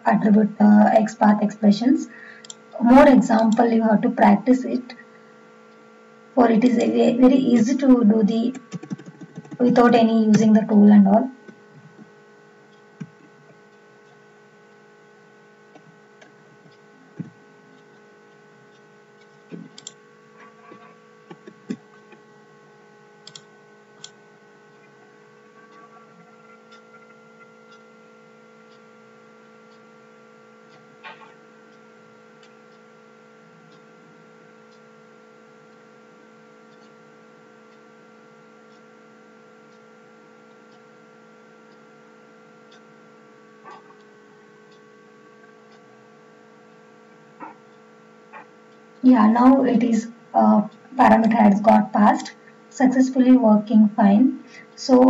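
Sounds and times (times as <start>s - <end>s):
low electrical hum: 0.0s - 55.0s
keyboard keystrokes: 8.7s - 9.7s.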